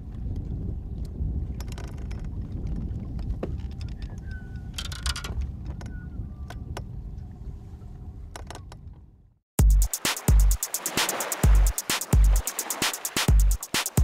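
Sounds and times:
wind rumbling on microphone: 0:00.0 - 0:09.4.

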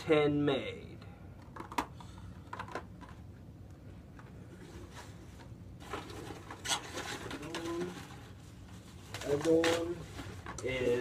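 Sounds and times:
low steady hum: 0:00.0 - 0:11.0
hands rustling plastic packing: 0:04.8 - 0:11.0.

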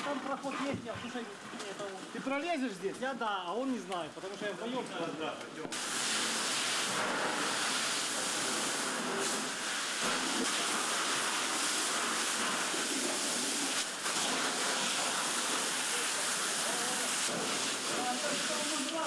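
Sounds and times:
hiss of water spray and steam: 0:05.7 - 0:19.0.

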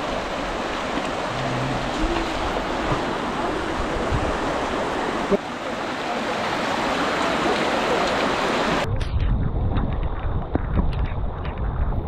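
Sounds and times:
floodwater rushing: 0:00.0 - 0:08.9.

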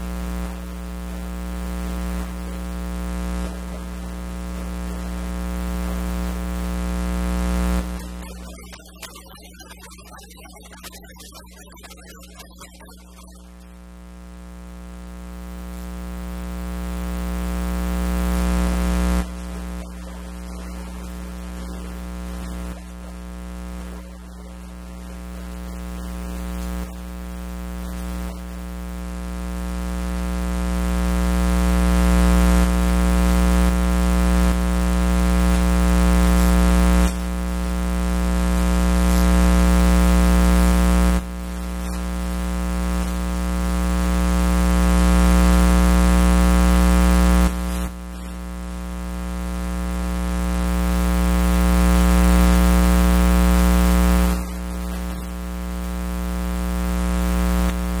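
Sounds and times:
loud electrical mains hum: 0:15.0 - 0:58.0.

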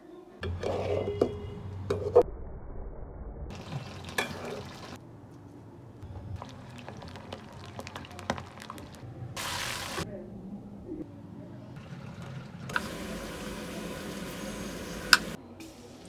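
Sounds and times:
hot oil crackling and popping: 0:03.5 - 0:05.0, 0:06.4 - 0:10.0, 0:11.8 - 0:15.4.

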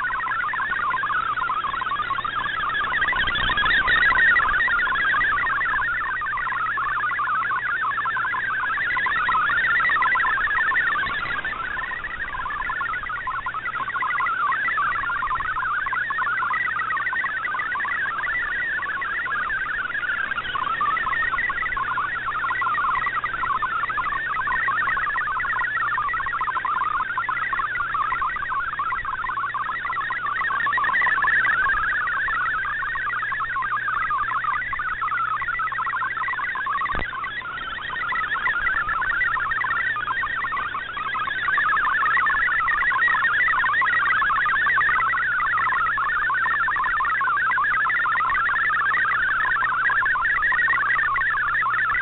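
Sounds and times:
warbling digital data tones: 0:00.0 - 0:52.0.

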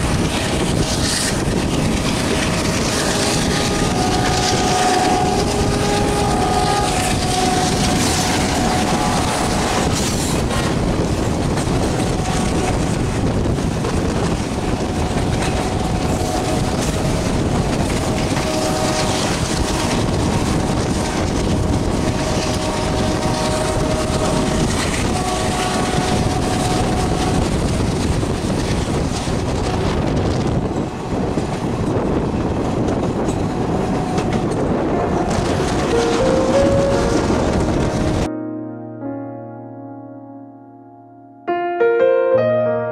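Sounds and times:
train wheel and rail noise: 0:00.0 - 0:38.3
freight train passing: 0:00.0 - 0:39.1
short high-pitched tones: 0:36.0 - 0:39.0.

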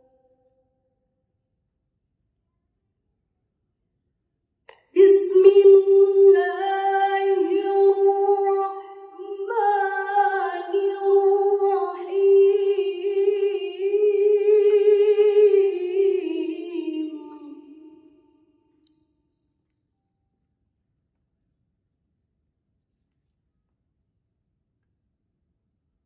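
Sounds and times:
woman reciting melodically: 0:04.9 - 0:18.2.

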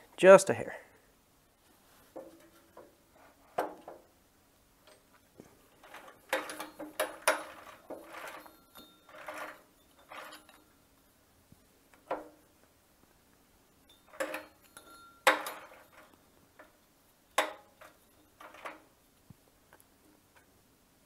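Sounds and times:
metallic clicks and clinks: 0:04.8 - 0:10.8, 0:13.8 - 0:19.8.

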